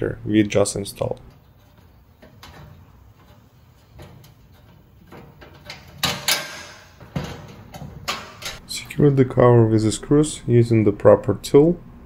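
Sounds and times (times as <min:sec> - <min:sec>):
sharp metallic snap and rattle: 0:04.0 - 0:08.6.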